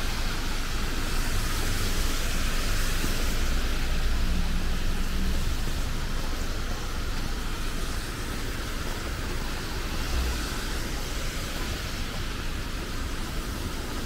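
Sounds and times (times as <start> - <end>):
low traffic rumble: 0.0 - 14.0
rain hissing: 0.0 - 14.0
traffic on wet roads: 0.0 - 14.0.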